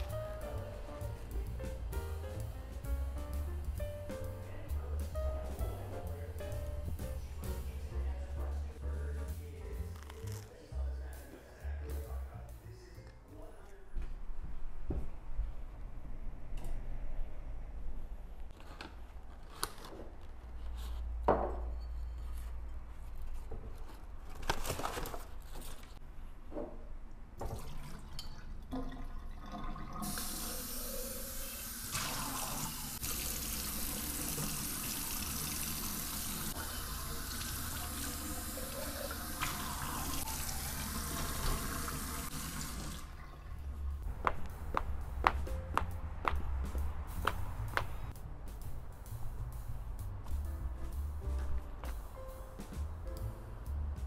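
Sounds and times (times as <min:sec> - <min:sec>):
tap running into metal sink: 0:38.7 - 0:40.2, 0:40.9 - 0:43.0.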